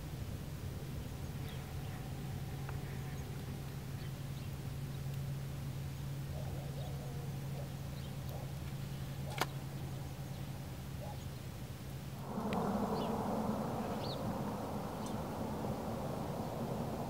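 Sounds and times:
steady low hum: 0.0s - 17.0s
faint bird chirps: 12.4s - 17.0s.

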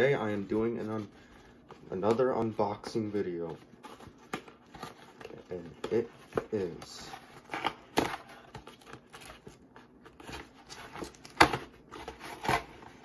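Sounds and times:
cardboard scraping and rustling: 1.9s - 13.0s
sharp cardboard cracks: 10.2s - 13.0s.

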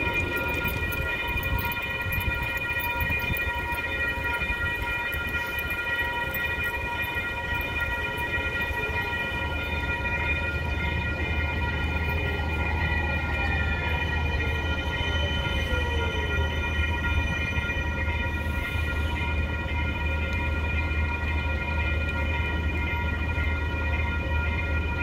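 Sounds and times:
low rumble of approaching trolley: 0.0s - 25.0s
railroad crossing bell ringing: 0.0s - 25.0s.

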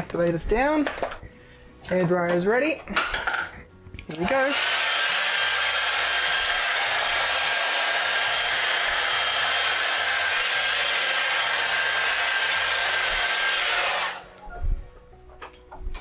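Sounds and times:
hair dryer running: 4.1s - 14.4s.

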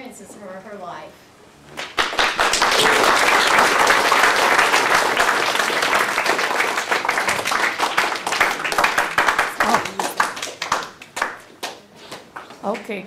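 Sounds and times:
audience applauding: 1.8s - 11.8s.

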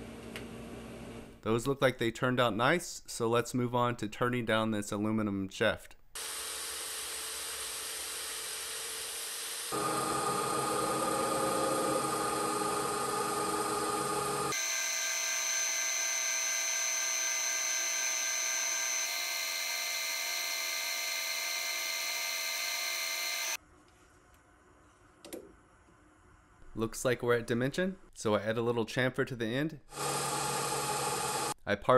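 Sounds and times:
lathe high-pitched whine: 6.2s - 23.6s.

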